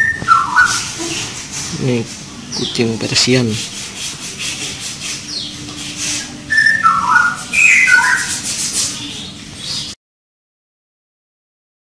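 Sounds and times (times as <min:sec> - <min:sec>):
whistle-like notes stepping down: 0:06.1 - 0:08.3.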